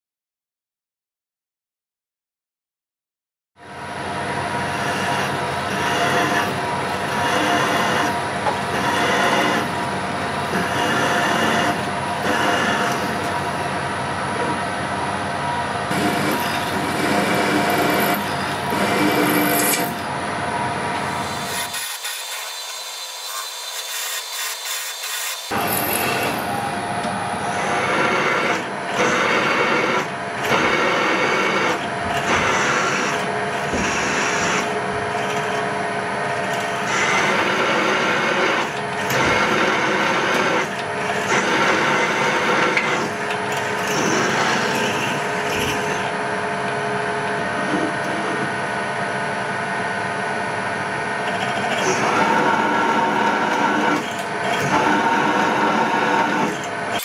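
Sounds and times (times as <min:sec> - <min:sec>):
drill press motor whine: 0:03.6 - 0:57.0
drill bit grinding steel: 0:04.6 - 0:13.8, 0:15.9 - 0:20.1, 0:21.0 - 0:26.7, 0:27.4 - 0:35.7, 0:36.5 - 0:46.2, 0:51.3 - 0:57.0.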